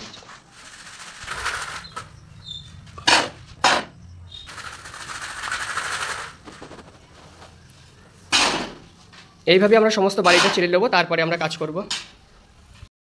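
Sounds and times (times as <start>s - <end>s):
loud sharp knocks: 3.0s - 4.0s, 8.3s - 8.9s
sand sifting through sieve: 4.5s - 7.5s.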